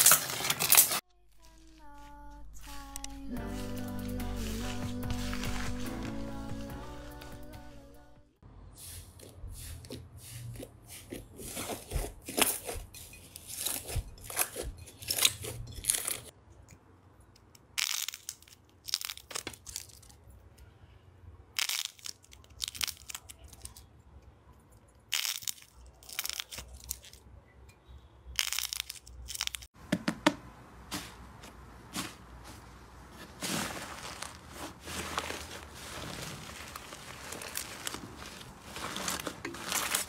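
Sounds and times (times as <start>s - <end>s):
slime crackling and crunching: 17.8s - 20.2s, 21.5s - 23.9s, 25.0s - 27.2s, 28.4s - 29.7s, 33.4s - 40.0s.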